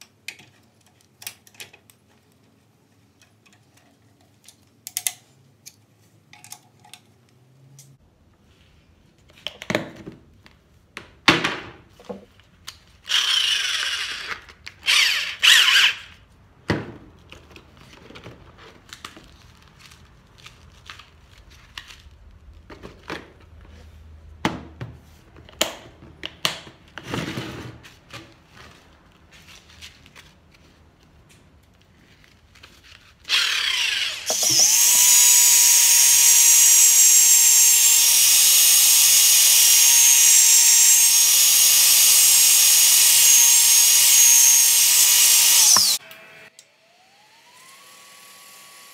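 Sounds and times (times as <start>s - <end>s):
drill whining: 13.1s - 16.2s, 33.3s - 48.9s.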